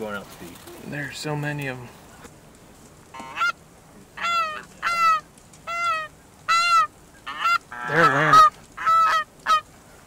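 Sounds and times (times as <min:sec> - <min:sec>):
geese honking: 0:03.1 - 0:03.6, 0:04.2 - 0:09.7.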